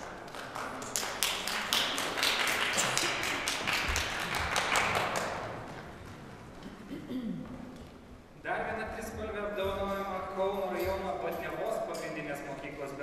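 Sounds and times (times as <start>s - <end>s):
small audience applauding: 0.0s - 5.8s.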